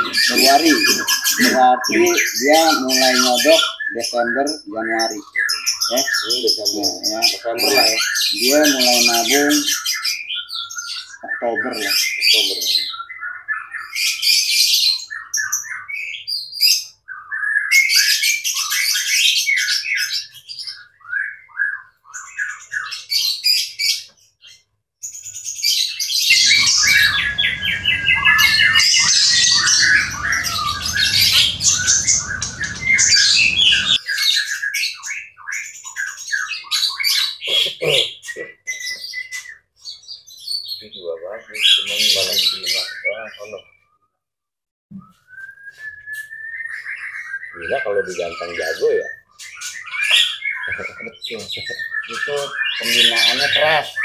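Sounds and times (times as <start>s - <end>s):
bird singing whistles and chirps: 0.0s - 24.0s, 25.2s - 43.8s, 44.9s - 54.0s
low rumble: 26.4s - 34.0s.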